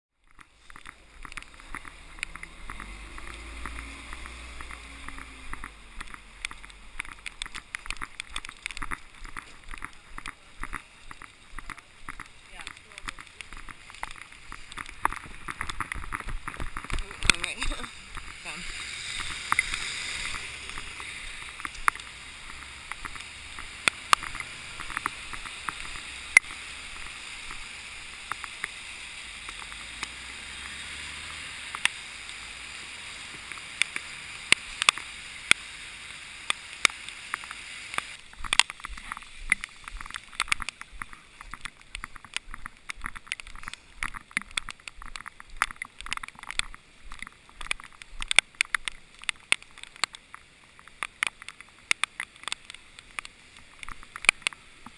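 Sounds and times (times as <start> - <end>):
rain hissing: 0.3 - 54.9
taps and clicks on camera: 36.5 - 54.9.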